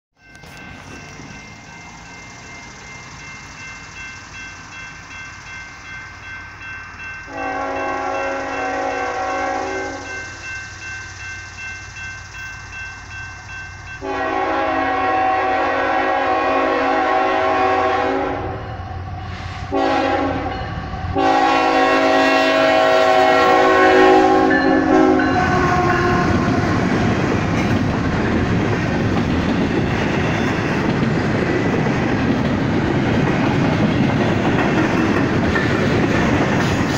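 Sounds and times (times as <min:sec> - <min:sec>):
crossing bell ringing: 0:00.2 - 0:36.9
train cars clickety-clack: 0:00.2 - 0:36.9
locomotive horn blasts: 0:07.3 - 0:10.2, 0:14.0 - 0:18.8, 0:19.4 - 0:26.7.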